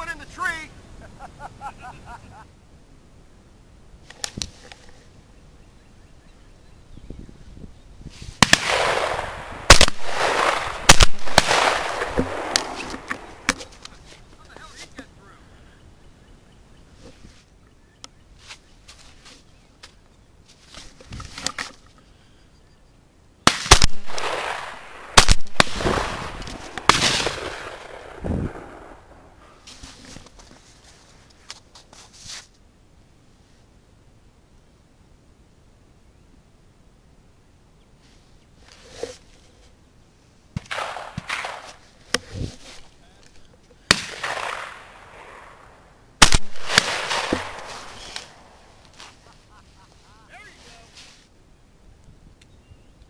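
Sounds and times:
rustling: 4.0s - 5.2s, 9.9s - 15.2s, 16.9s - 17.6s, 18.3s - 22.2s, 29.4s - 32.6s, 38.0s - 45.0s, 46.4s - 51.4s
shotgun shots echoing: 8.4s - 13.6s, 23.5s - 29.2s, 40.6s - 41.8s, 43.9s - 48.8s
quiet sharp cracks: 8.4s - 15.1s, 23.5s - 29.4s, 40.6s - 49.4s.

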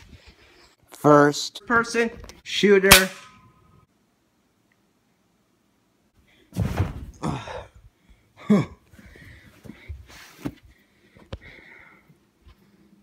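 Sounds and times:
thump on couch cushions: 6.6s - 7.2s.

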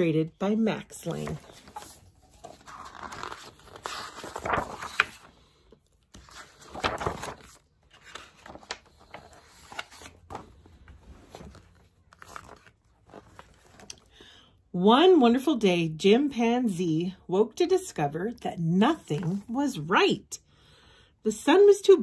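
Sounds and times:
book pages turning: 0.9s - 14.1s, 18.9s - 19.6s.

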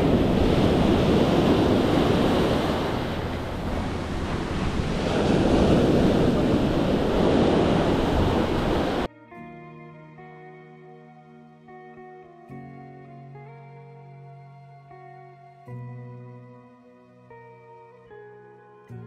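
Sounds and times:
quiet lo-fi music: 0.0s - 7.0s, 9.1s - 19.0s
ocean surf washing up beach: 0.0s - 9.1s
wind buffeting microphone: 0.0s - 9.1s.

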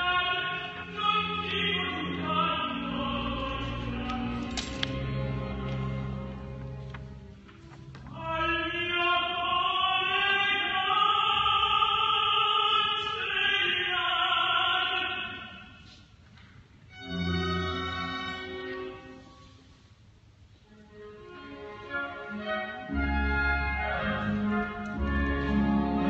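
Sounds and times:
operatic tenor singing: 0.0s - 6.4s, 7.9s - 15.8s, 21.2s - 26.0s.

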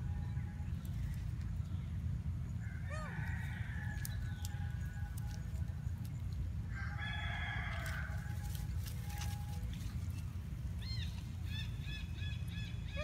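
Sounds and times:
rooster crowing: 2.6s - 5.5s, 6.7s - 9.6s.

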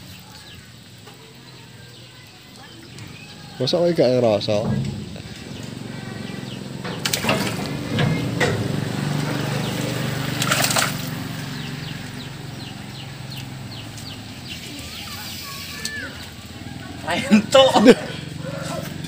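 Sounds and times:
water sloshing and splashing: 4.4s - 12.2s.

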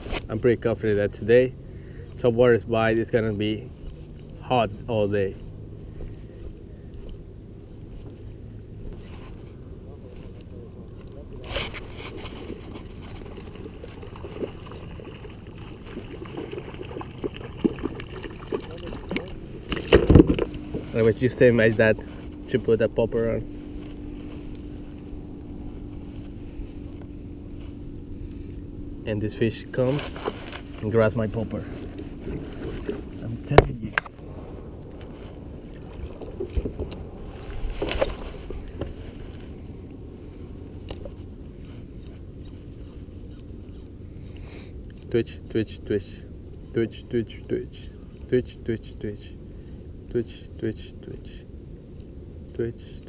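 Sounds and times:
scuffling rustle: 3.3s - 28.5s, 29.7s - 44.7s
water lapping against kayak: 11.4s - 21.0s, 31.8s - 33.2s, 34.2s - 39.4s.

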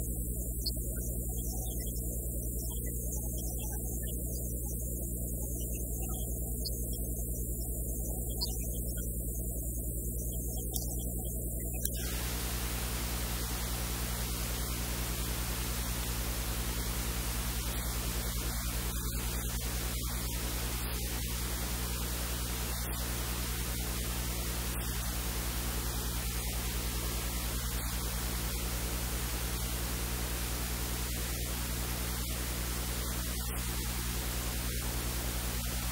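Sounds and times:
low electrical hum: 0.0s - 35.9s
steady hiss: 11.6s - 35.9s.

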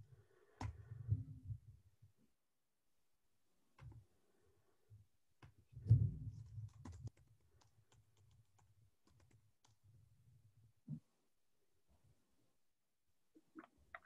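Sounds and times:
typing on computer keyboard: 6.4s - 9.8s.

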